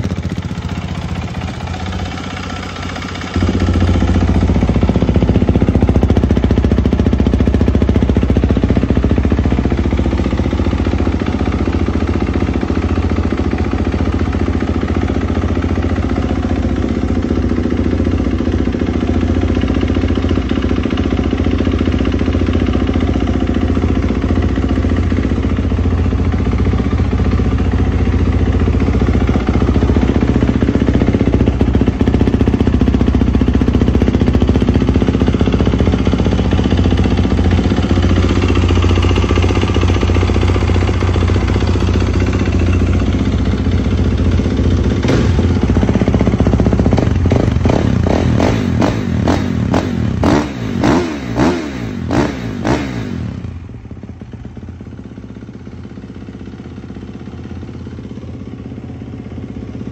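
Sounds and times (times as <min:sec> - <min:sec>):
motorcycle engine idling: 0:00.0 - 0:59.9
motorcycle engine revving: 0:00.0 - 0:59.9.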